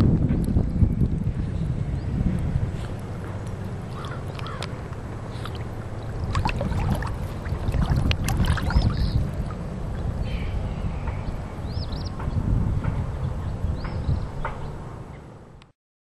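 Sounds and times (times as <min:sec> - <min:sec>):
wind rumbling on microphone: 0:00.0 - 0:15.7
water lapping: 0:02.6 - 0:11.3.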